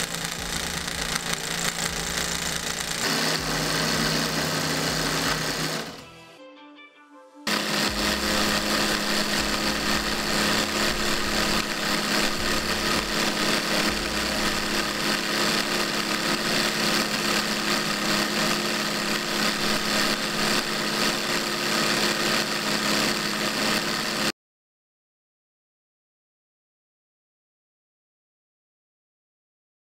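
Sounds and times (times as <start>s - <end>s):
electric motor hum: 0.0s - 6.4s, 7.5s - 24.3s.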